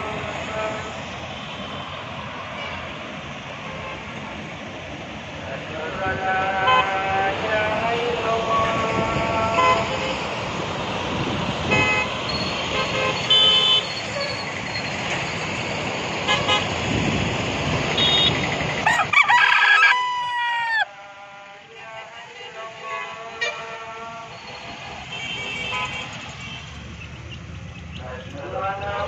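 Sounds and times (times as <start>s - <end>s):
road traffic: 0.0s - 29.0s
car horn toots: 11.7s - 14.0s, 18.0s - 18.5s, 25.1s - 26.7s
rooster crowing: 18.8s - 20.9s.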